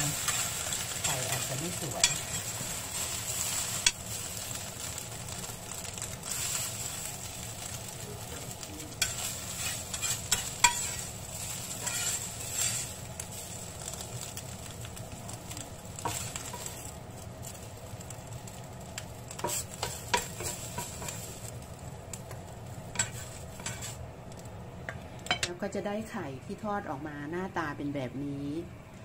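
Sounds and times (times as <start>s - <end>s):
egg sizzling in skillet: 0.0s - 25.5s
metal spatula scraping pan: 9.0s - 11.1s, 11.7s - 12.9s, 23.0s - 24.0s.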